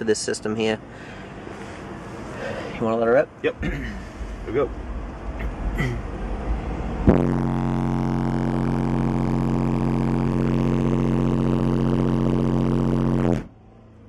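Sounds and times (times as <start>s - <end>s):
subwoofer low bass tone: 3.6s - 14.0s.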